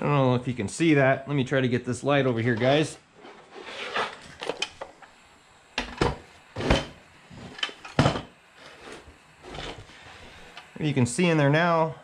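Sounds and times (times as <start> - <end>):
objects clattering on a workbench: 5.8 - 9.9.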